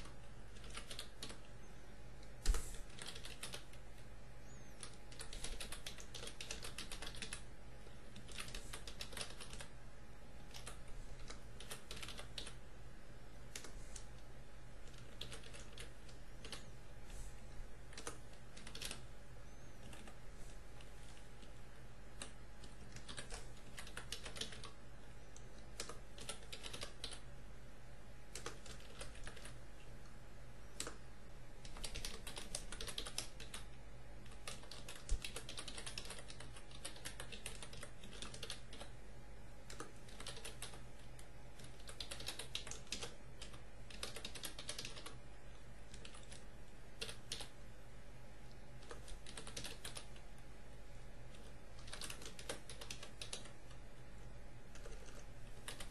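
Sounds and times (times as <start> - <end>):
keyboard typing: 0.0 - 1.6, 2.2 - 9.8, 10.4 - 12.6, 13.4 - 16.8, 17.8 - 27.3, 28.3 - 29.7, 30.7 - 31.0, 31.6 - 39.0, 39.6 - 47.6, 48.8 - 50.3, 51.3 - 53.8, 54.7 - 55.9
low electrical hum: 0.0 - 55.9.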